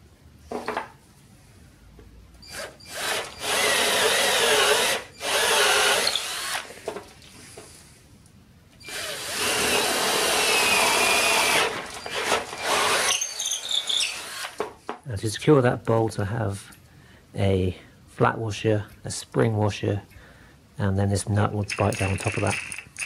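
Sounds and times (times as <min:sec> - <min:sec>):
cordless drill boring through wood: 0:02.5 - 0:06.7, 0:08.8 - 0:14.6
handling noise: 0:21.6 - 0:23.0.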